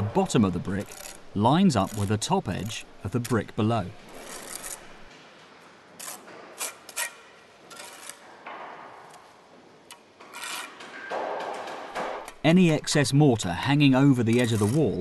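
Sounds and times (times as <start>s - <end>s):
trowel scraping brick and mortar: 14.3s - 15.0s.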